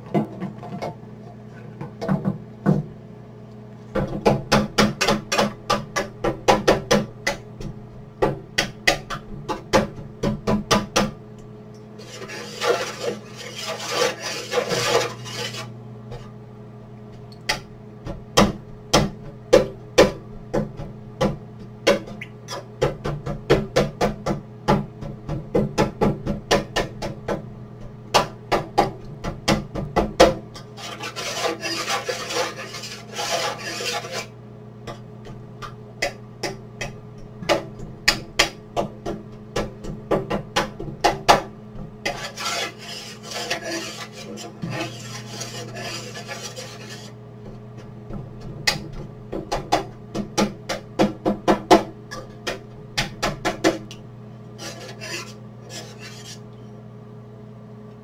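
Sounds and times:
steady low hum: 0:00.0 - 0:58.0
knife scraping across board: 0:12.0 - 0:16.3, 0:30.6 - 0:34.3, 0:42.0 - 0:47.2, 0:54.6 - 0:56.5.

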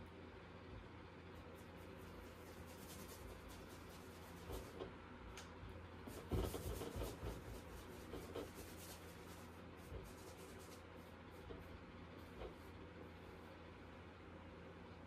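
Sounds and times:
faint steady hum: 0:00.0 - 0:15.0
paintbrush scrubbing on canvas: 0:01.4 - 0:04.9, 0:06.0 - 0:13.6.

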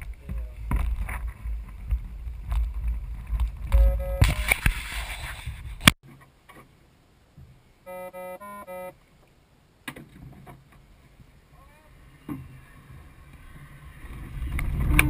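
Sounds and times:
wind buffeting microphone: 0:00.0 - 0:06.0, 0:12.4 - 0:15.0
short electronic beep: 0:03.7 - 0:04.5, 0:07.9 - 0:08.9.

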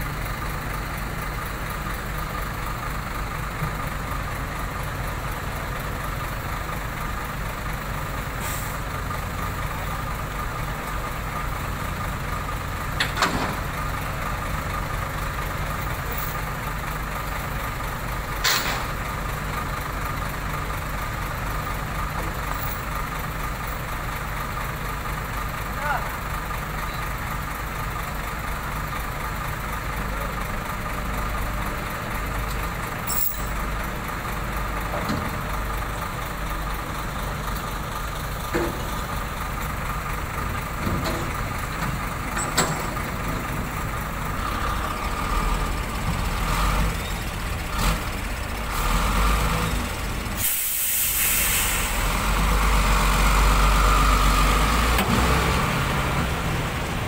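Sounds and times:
diesel trucks idling: 0:00.0 - 0:57.0
truck pulling away: 0:00.0 - 0:57.0
air brake hiss: 0:08.4 - 0:08.9, 0:50.4 - 0:52.1.

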